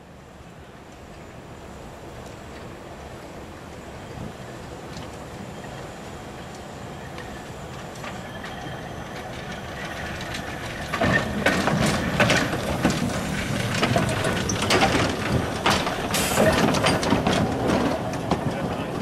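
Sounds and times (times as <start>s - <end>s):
steam locomotive running: 0.0s - 19.0s
wheels clanking over rail joints: 4.1s - 19.0s.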